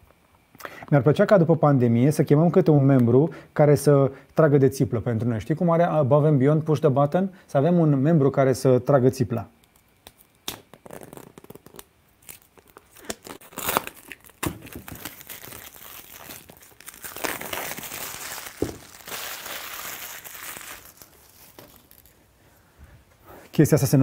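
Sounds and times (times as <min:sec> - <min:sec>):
plastic wrap crinkling: 0:09.6 - 0:22.3.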